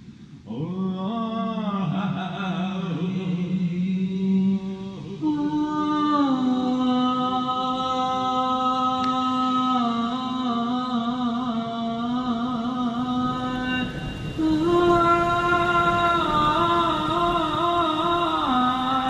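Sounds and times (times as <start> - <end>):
slow chanting: 0.0 - 19.0.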